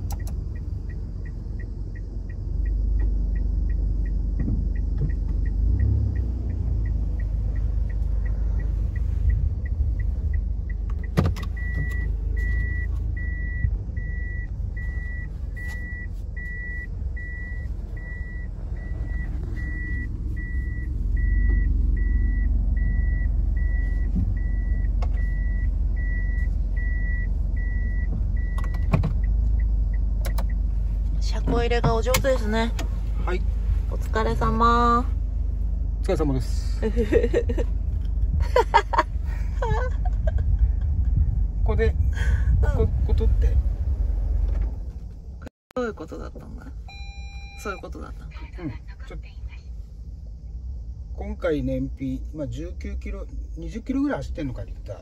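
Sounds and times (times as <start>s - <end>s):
low engine rumble: 0.0s - 55.0s
reverse warning beeper: 0.1s - 30.7s, 46.8s - 48.1s.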